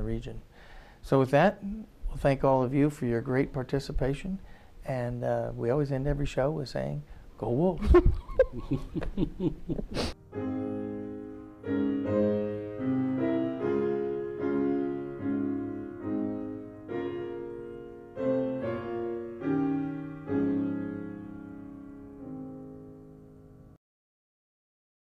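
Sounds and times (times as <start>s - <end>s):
slow piano chords: 7.8s - 23.8s.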